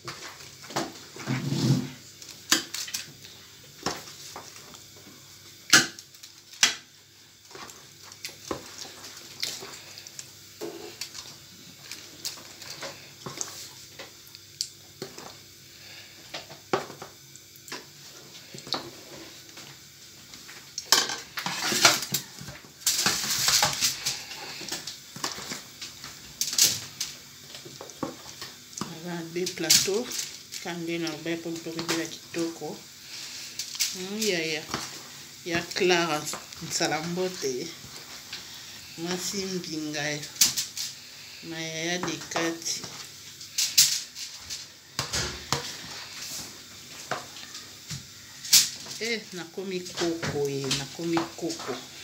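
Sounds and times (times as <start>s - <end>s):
scraping and rustling: 0.9s - 2.1s.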